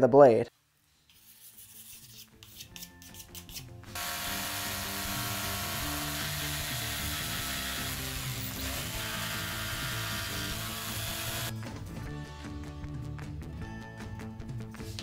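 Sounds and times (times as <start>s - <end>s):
quick scratching strokes: 1.1s - 3.7s
jigsaw cutting board: 4.0s - 11.5s.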